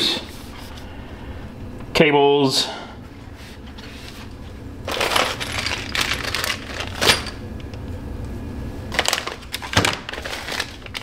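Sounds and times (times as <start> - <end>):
plastic bags crinkling: 4.8 - 7.4, 8.9 - 11.0.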